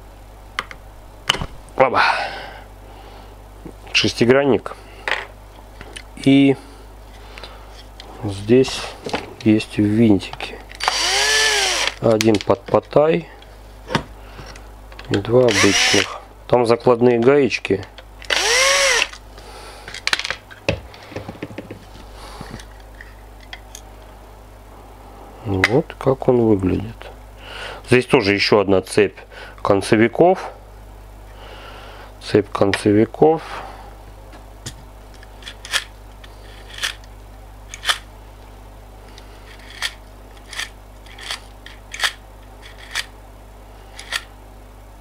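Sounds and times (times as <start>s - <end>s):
plastic parts clicking and scraping: 35.2s - 37.1s, 37.7s - 38.0s, 39.4s - 43.1s, 43.9s - 44.3s.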